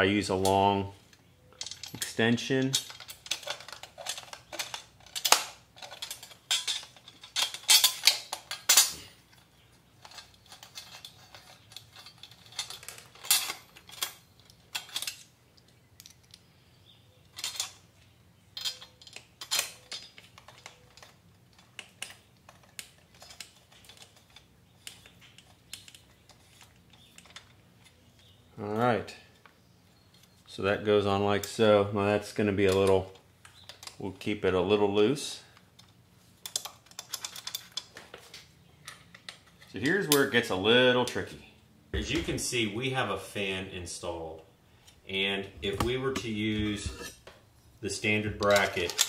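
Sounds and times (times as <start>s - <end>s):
metal socket clinking on bolts: 1.5s - 9.0s, 10.0s - 15.3s, 18.6s - 27.6s, 35.8s - 37.9s, 48.4s - 49.0s.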